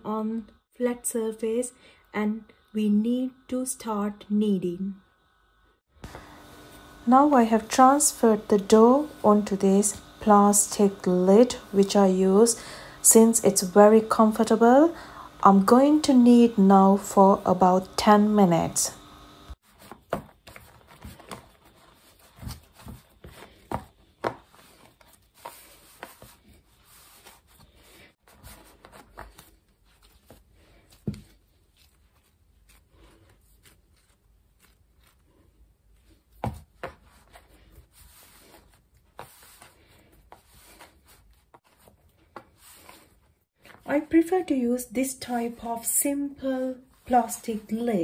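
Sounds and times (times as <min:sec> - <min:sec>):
dough being kneaded by hand: 0:06.0 - 0:44.2.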